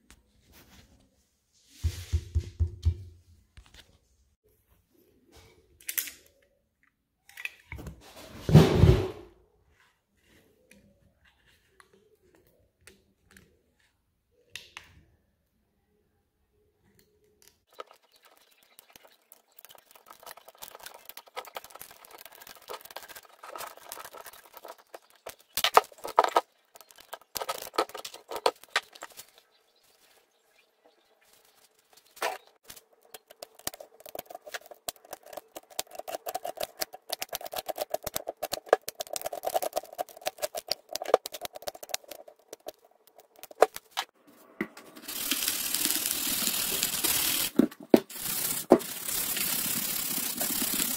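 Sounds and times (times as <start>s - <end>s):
plastic cracking: 17.7s - 29.4s, 32.1s - 44.1s
plastic crackling and creaking: 17.7s - 29.5s, 31.4s - 44.1s
scratchy rubbing hiss: 45.1s - 50.9s.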